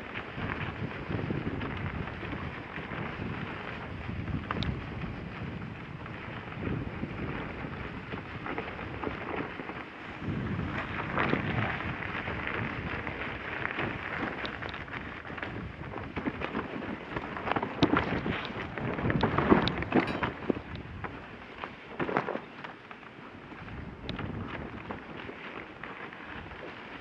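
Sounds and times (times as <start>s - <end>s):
wind buffeting microphone: 0.0s - 22.6s, 23.3s - 27.0s
sled runners scraping snow: 0.0s - 27.0s
small knocks and crackles: 0.0s - 27.0s.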